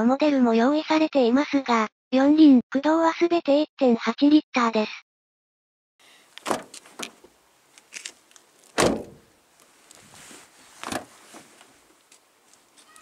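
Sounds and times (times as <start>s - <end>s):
car door latch click: 6.4s - 7.3s, 8.7s - 9.3s, 10.8s - 11.1s
car door shutting thud: 6.4s - 7.3s, 8.7s - 9.3s, 10.8s - 11.5s.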